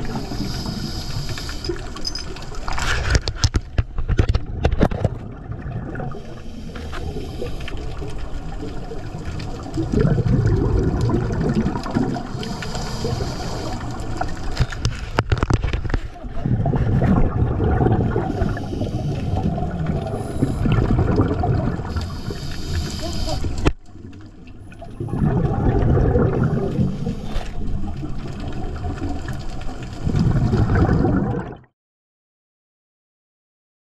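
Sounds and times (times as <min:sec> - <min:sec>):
regulator inhale hiss: 0:00.0 - 0:01.8, 0:06.2 - 0:08.0, 0:12.2 - 0:14.2, 0:18.3 - 0:19.5, 0:21.9 - 0:23.7
exhaust bubbles rushing: 0:05.0 - 0:14.4, 0:16.3 - 0:22.4, 0:23.5 - 0:31.7.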